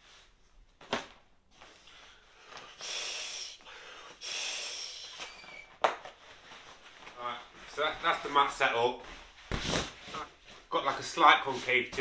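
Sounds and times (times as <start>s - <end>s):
man blowing into valve: 2.7s - 5.7s.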